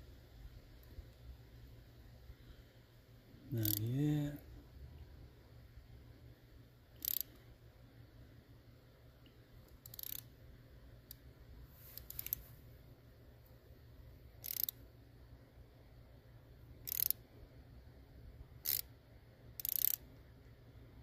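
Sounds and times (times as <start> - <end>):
socket ratchet clicking: 3.6 - 3.9, 7.0 - 7.4, 9.7 - 10.3, 12.0 - 12.4, 14.4 - 14.8, 16.8 - 17.2, 18.6 - 18.9, 19.6 - 20.1.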